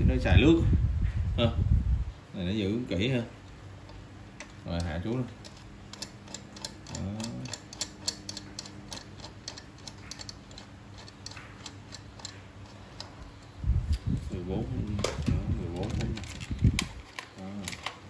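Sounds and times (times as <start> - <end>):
adjustment knob clicking: 3.9 - 13.2.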